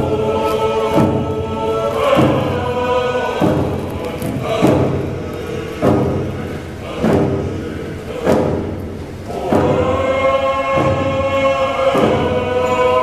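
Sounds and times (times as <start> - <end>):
group of voices singing: 0.0 - 13.0
hand drums beating slowly: 0.0 - 13.0.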